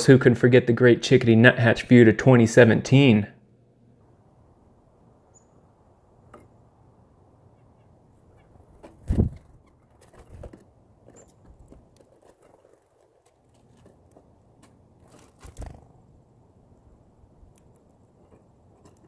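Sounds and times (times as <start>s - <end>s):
bird wing flutters: 8.4s - 14.0s, 15.0s - 16.1s
seeds pecked and rustling: 8.7s - 16.0s, 17.4s - 19.0s.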